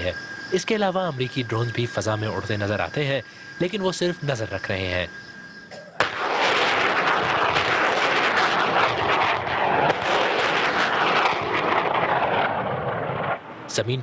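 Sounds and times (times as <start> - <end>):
rockets firing with rushing roar: 6.0 - 13.7.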